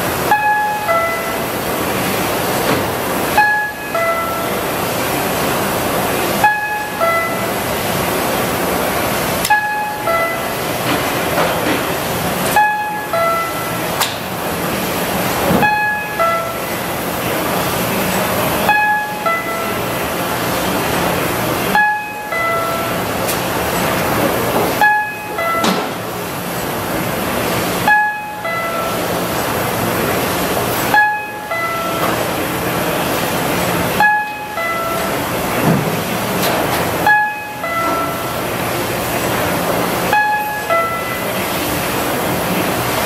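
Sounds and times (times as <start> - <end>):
printing press running: 0.0 - 43.0
two-note electronic beep: 0.3 - 1.5, 3.4 - 4.6, 6.4 - 7.6, 9.4 - 10.6, 12.5 - 13.8, 15.6 - 16.9, 18.6 - 19.9, 21.7 - 23.1, 24.8 - 25.9, 27.8 - 29.1, 30.9 - 32.1, 34.0 - 35.2, 37.0 - 38.3, 40.1 - 41.4.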